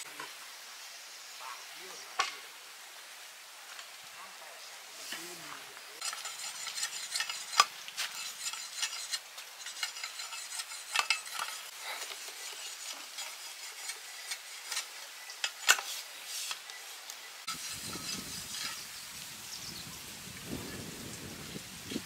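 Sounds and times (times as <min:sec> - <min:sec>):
utensil knocking and scraping pan: 0:06.0 - 0:18.9
food sizzling in a pan: 0:11.2 - 0:22.0.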